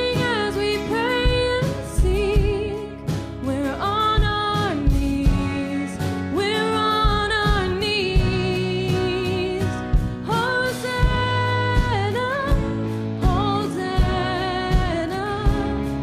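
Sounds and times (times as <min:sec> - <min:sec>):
drum hits: 0:00.0 - 0:16.0
live band playing: 0:00.0 - 0:16.0
woman singing worship song: 0:00.0 - 0:16.0.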